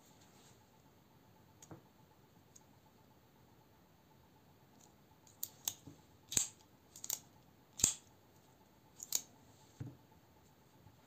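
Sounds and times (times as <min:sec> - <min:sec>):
folding knife clicking: 0:05.3 - 0:07.2, 0:07.8 - 0:08.1.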